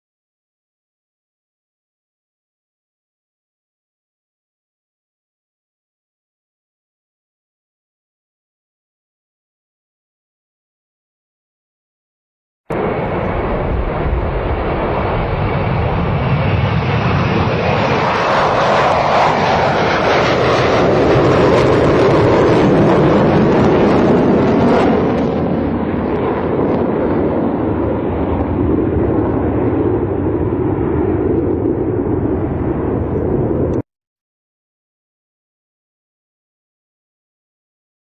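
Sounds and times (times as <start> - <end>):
jet engines roaring: 12.7 - 33.8.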